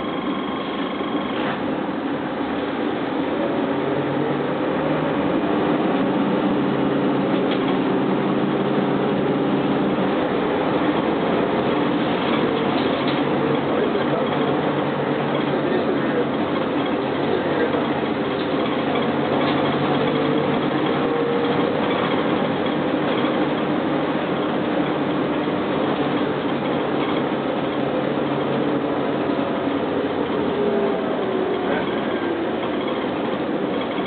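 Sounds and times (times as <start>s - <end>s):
faint whine: 0.0s - 3.6s, 27.0s - 34.0s
bus diesel engine running: 0.0s - 34.0s
road noise: 0.0s - 34.0s.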